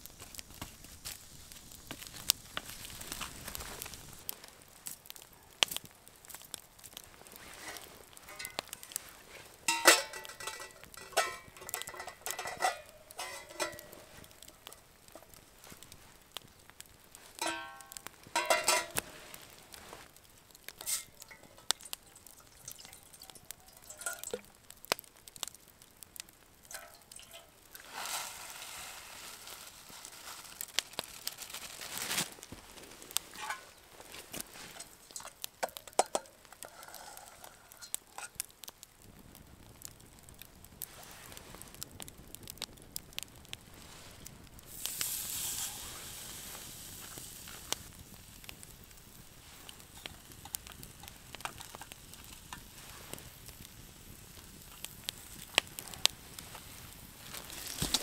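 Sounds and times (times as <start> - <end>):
campfire crackling and popping: 0.0 - 58.0
metal pot squealing on grate: 7.5 - 9.0, 9.7 - 14.0, 36.1 - 38.3
rice pouring into pot: 20.9 - 24.5, 26.7 - 37.9, 44.7 - 47.7.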